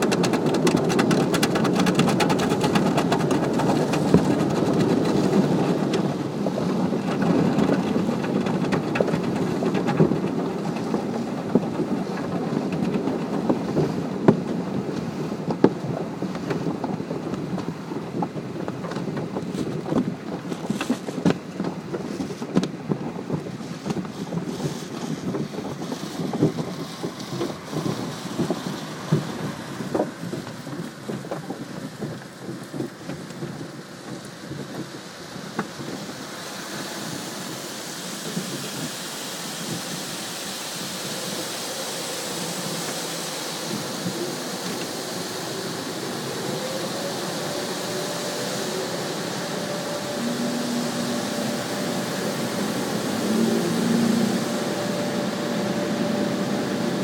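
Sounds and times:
car wash scrubbing and drumming: 0:00.0 - 0:57.0
water spray hissing on windshield: 0:36.1 - 0:57.0.

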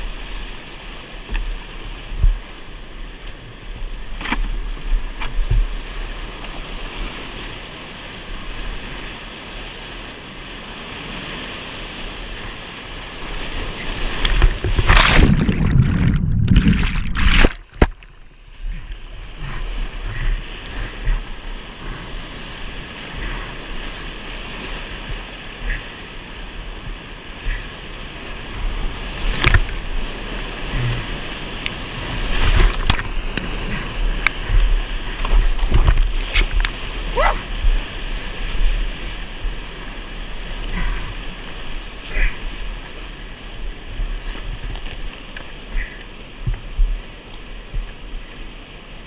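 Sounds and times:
rushing whitewater: 0:05.7 - 0:49.0
water splashing on camera: 0:12.3 - 0:22.2, 0:28.5 - 0:43.0.

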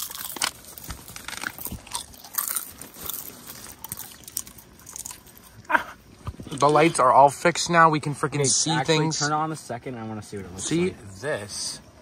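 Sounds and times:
person crunching and chewing: 0:00.0 - 0:06.8.

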